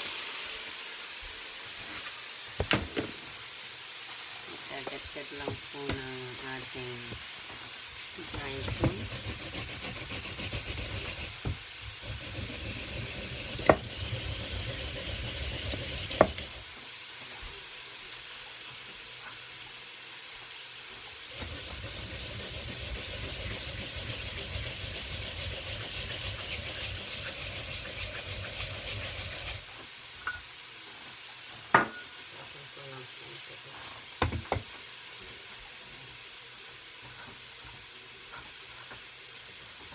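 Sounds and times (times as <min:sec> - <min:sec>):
food sizzling in a pan: 0:00.0 - 0:39.9.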